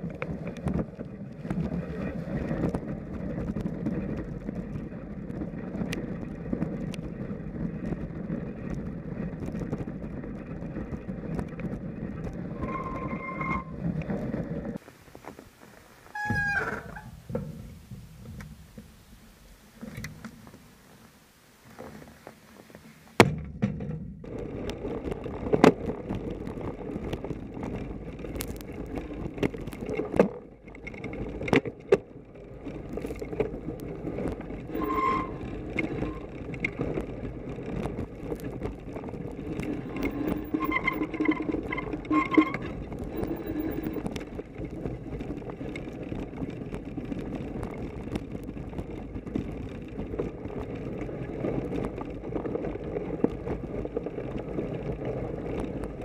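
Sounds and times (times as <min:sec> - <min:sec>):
bike knocking and rattling: 0:00.0 - 0:56.0
bike tyre rolling through snow: 0:00.0 - 0:56.0
brief high squeals: 0:12.6 - 0:13.8, 0:16.1 - 0:17.2.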